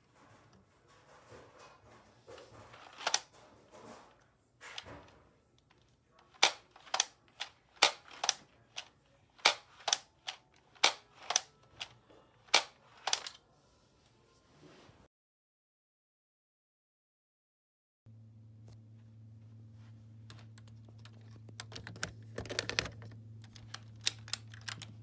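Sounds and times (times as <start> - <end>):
plastic clacks: 1.6 - 13.4, 20.3 - 25.0.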